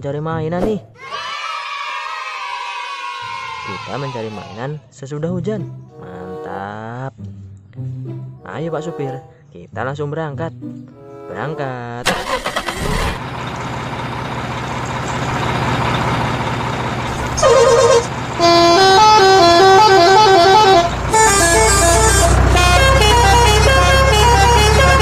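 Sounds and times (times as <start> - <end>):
truck engine running: 12.0 - 25.0
horn honk: 17.4 - 25.0
multi-tone musical horn tune: 17.4 - 25.0.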